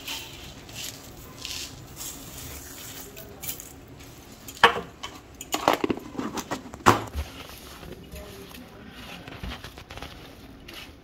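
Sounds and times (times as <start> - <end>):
wooden spatula scraping a pan: 5.5 - 11.0.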